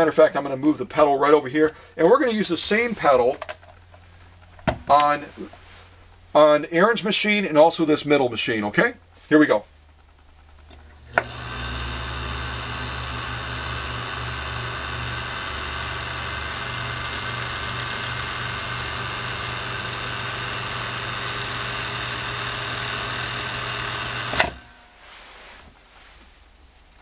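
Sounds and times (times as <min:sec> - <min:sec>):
sewing machine running: 0:10.5 - 0:24.8.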